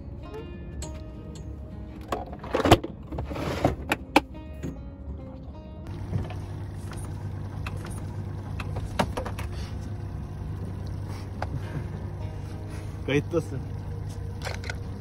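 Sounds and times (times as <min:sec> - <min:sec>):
outboard motor running: 0:05.8 - 0:15.0.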